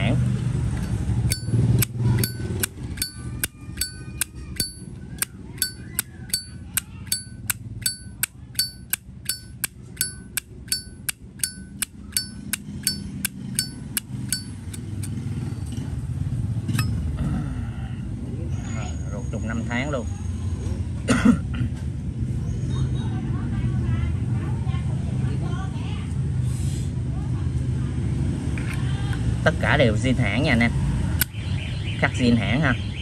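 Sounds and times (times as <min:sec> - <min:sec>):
lighter lid clinking: 0:05.6 - 0:15.1.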